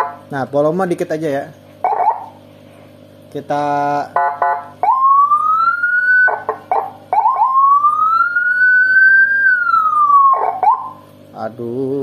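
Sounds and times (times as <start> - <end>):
electronic siren wailing and yelping: 0.0 - 0.2, 1.8 - 2.4, 4.2 - 11.1.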